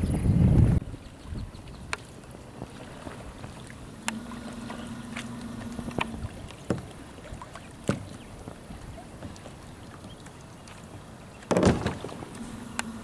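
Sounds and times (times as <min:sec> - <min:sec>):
water lapping against hull: 0:00.0 - 0:13.0
faint steady hum: 0:02.7 - 0:13.0.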